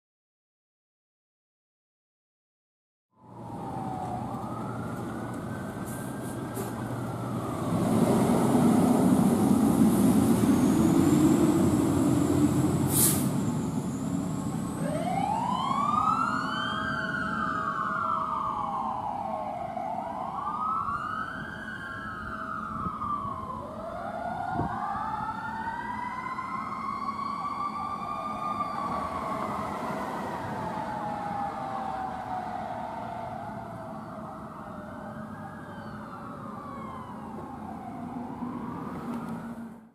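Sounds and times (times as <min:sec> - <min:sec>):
siren wailing: 0:03.2 - 0:39.8
diesel engine pulling away: 0:03.2 - 0:39.9
short hiss: 0:12.9 - 0:13.3.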